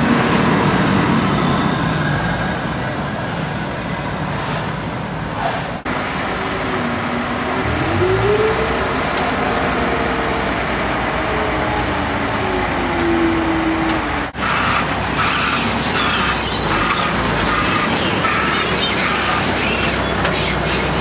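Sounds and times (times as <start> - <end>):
diesel engine revving: 5.8 - 21.0.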